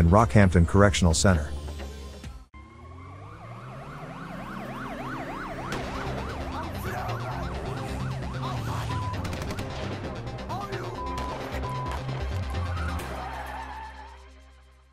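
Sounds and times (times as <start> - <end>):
background music: 0.0 - 14.9
emergency siren yelping: 2.6 - 14.2.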